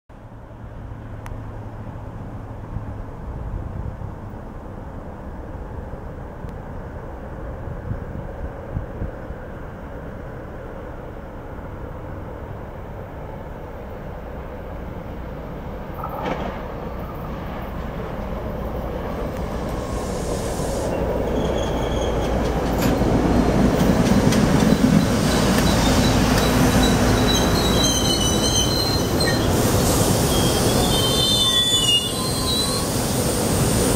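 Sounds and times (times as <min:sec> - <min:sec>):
train rumbling past: 0:00.2 - 0:33.9
wheels and brakes squealing: 0:19.8 - 0:22.9, 0:24.6 - 0:33.9.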